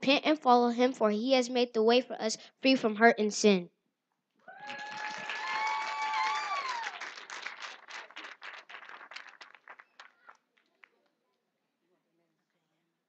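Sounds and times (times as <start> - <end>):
person cheering: 4.4 - 7.1
crowd applauding: 4.5 - 11.2.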